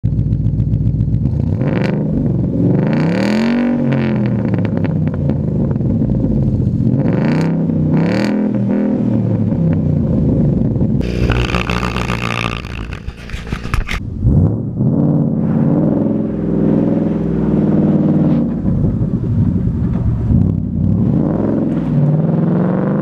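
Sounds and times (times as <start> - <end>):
car engine idling and revving: 0.0 - 23.0
harsh noisy sound: 11.0 - 14.6.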